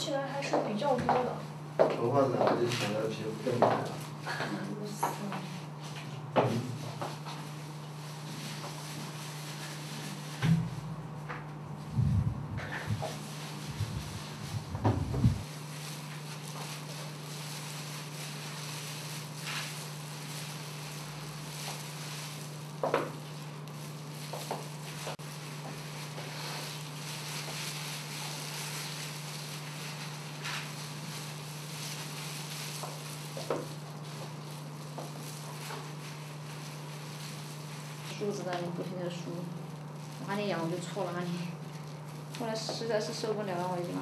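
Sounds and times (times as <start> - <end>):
low hum: 10.6 - 15.5
soft handling noises: 11.8 - 44.0.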